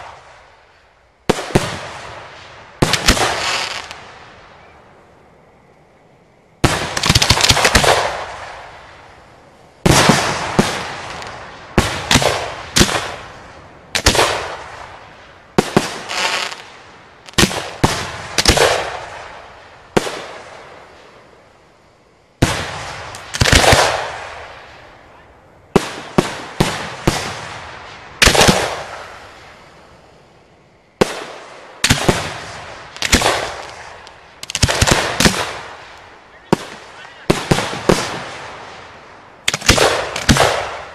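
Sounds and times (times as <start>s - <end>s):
firework mortar booms: 0.0s - 4.8s, 6.6s - 21.5s, 22.4s - 30.4s, 31.0s - 40.9s.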